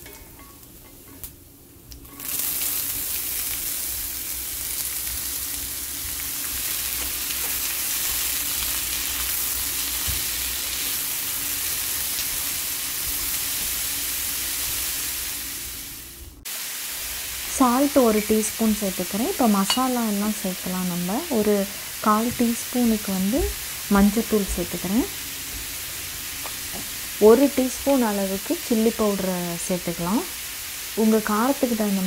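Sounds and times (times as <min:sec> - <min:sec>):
potatoes sizzling in oil: 0:02.0 - 0:32.0.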